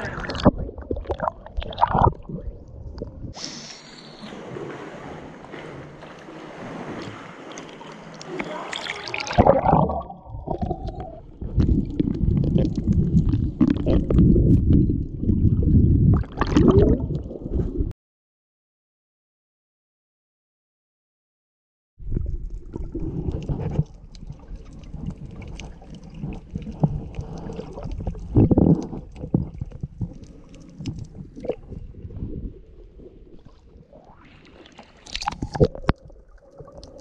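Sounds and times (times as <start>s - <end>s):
water sloshing and splashing: 0.0s - 3.4s, 4.0s - 17.9s, 22.1s - 37.0s
muffled underwater rumble: 9.2s - 17.9s, 22.0s - 34.3s.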